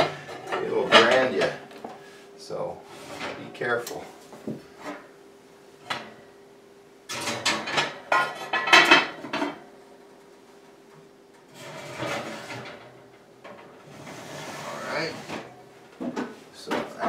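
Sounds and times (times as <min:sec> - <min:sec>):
clay dishes clattering on metal rack: 0:00.0 - 0:01.6, 0:07.1 - 0:09.7.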